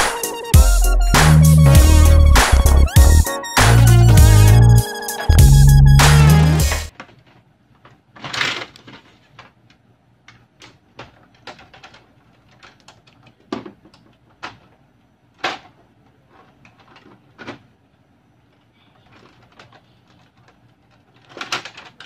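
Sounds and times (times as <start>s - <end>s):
plastic clicks and knocks: 10.3s - 14.8s.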